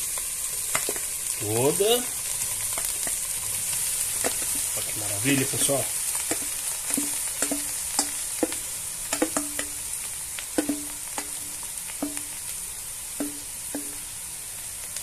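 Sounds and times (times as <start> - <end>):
butter and oil sizzling in pot: 0.0 - 15.0
utensil knocking against pot: 6.3 - 9.8, 10.6 - 11.4, 12.0 - 12.3, 13.2 - 14.0.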